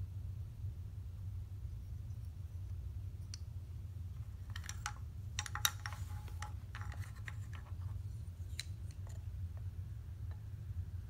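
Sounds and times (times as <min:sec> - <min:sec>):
steady low hum: 0:00.0 - 0:11.0
wooden pieces clicking and knocking: 0:04.2 - 0:09.3.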